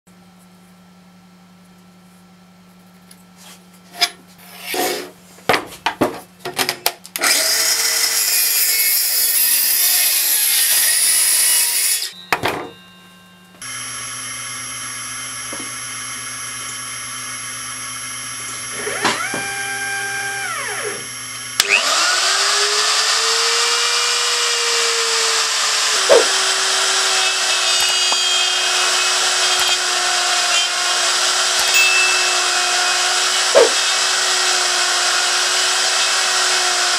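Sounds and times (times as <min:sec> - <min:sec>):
power saw cutting plywood: 0:07.2 - 0:12.2, 0:15.3 - 0:36.9
stepper motors humming and whining: 0:13.6 - 0:36.9
router spindle cutting plywood: 0:17.4 - 0:36.9.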